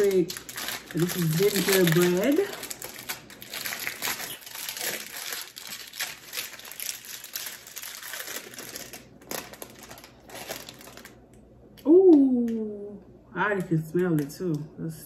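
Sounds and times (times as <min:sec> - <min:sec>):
plastic wrapper crinkling: 0:00.0 - 0:11.4, 0:13.6 - 0:14.6.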